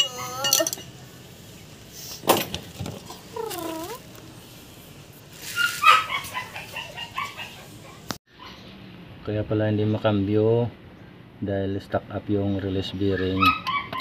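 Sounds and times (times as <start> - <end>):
dog whining with yelps: 3.3 - 4.0, 5.5 - 8.6, 13.2 - 14.0.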